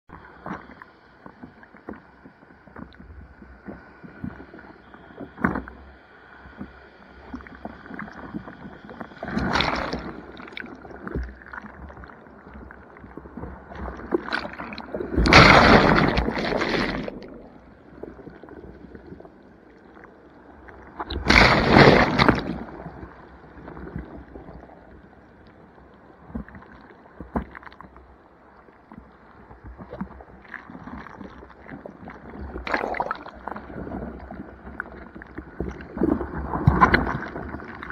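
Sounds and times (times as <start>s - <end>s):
ocean surf sloshing: 13.4s - 18.2s, 20.9s - 23.2s.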